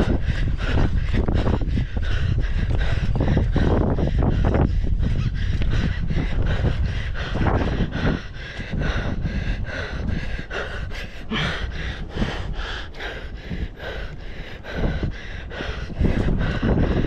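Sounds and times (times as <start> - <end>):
person breathing hard: 0.0 - 17.0.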